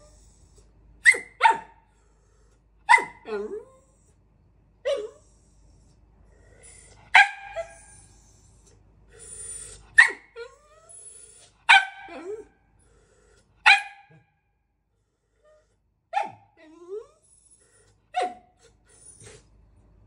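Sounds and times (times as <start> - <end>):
small dog barking: 1.0 - 1.8, 2.8 - 3.5, 7.1 - 7.7, 11.7 - 12.3, 13.6 - 14.2, 16.1 - 16.5, 18.2 - 18.5
dog whining: 2.9 - 4.1, 4.8 - 12.6, 15.4 - 19.5.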